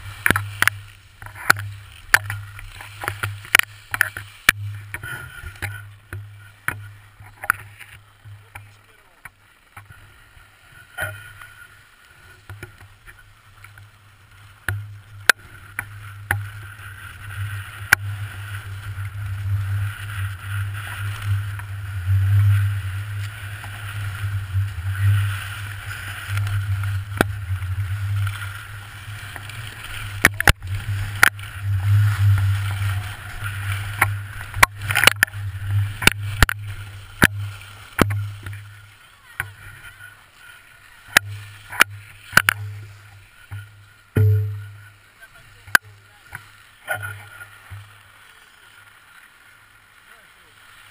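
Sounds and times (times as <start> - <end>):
skis scraping over packed snow: 0.0 - 50.9
wind rumbling on microphone: 14.2 - 40.1
sharp knocks: 44.2 - 44.6.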